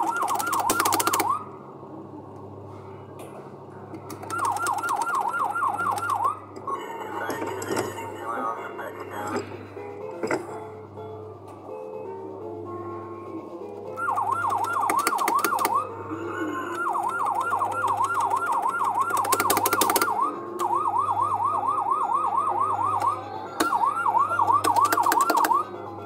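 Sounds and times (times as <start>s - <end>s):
electronic yelp siren: 0.0s - 1.6s, 4.2s - 7.7s, 14.0s - 26.0s.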